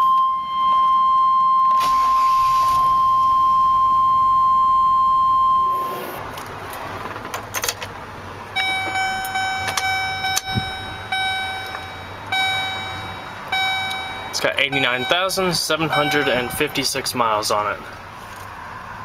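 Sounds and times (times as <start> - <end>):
repeating warning chime: 0.0 - 6.1, 8.6 - 17.0
steady high beep: 2.8 - 6.2, 8.6 - 17.0
clicks: 8.7 - 10.8.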